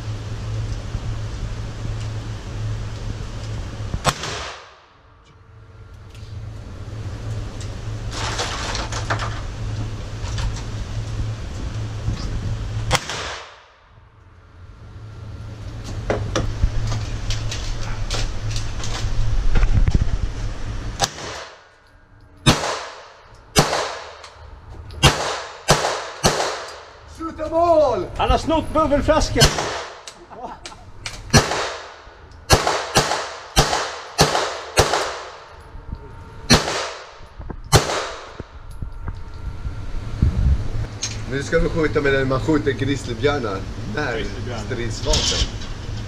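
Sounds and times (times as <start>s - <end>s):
steady low hum: 0.0s - 46.0s
pistol shots echoing indoors: 22.4s - 24.2s, 25.0s - 26.9s, 31.3s - 35.5s, 36.5s - 38.4s.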